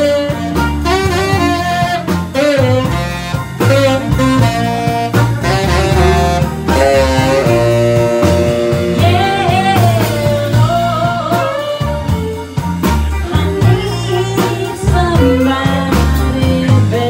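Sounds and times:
live blues band playing: 0:00.0 - 0:17.0
saxophone: 0:00.0 - 0:17.0
woman singing: 0:08.8 - 0:12.4, 0:13.2 - 0:17.0.

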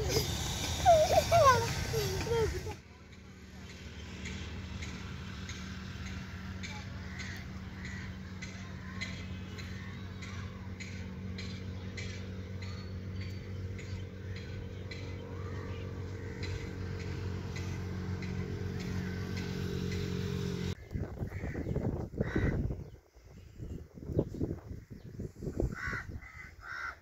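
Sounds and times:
regular ticking: 0:00.0 - 0:15.6
low engine hum: 0:00.0 - 0:22.4.

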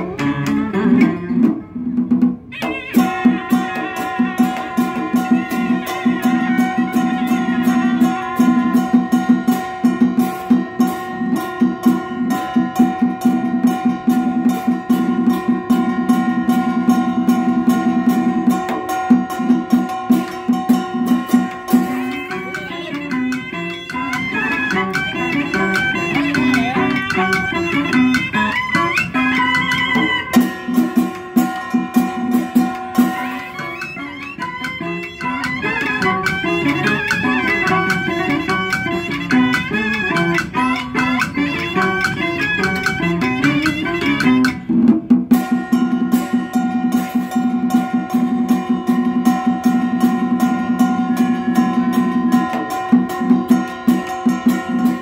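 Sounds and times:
drum and percussion strokes: 0:00.0 - 0:55.0
sliding ornamented melody: 0:02.6 - 0:44.6.

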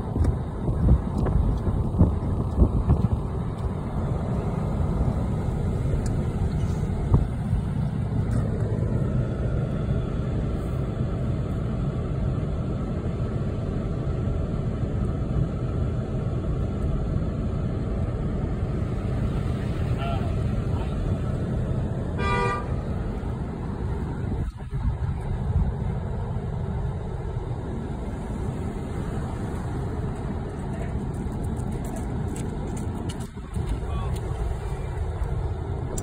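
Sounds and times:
road and engine rumble: 0:00.0 - 0:36.0
car horn toot: 0:22.2 - 0:22.8.

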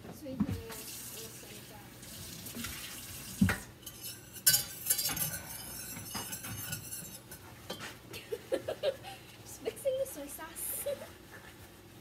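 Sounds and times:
utensils clinking against dishes: 0:03.4 - 0:07.9.

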